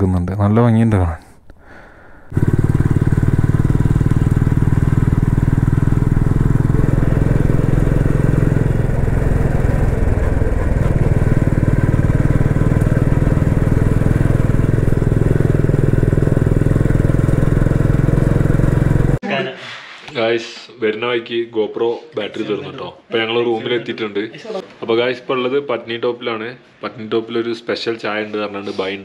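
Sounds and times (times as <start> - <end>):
motorcycle engine running: 2.3 - 19.2.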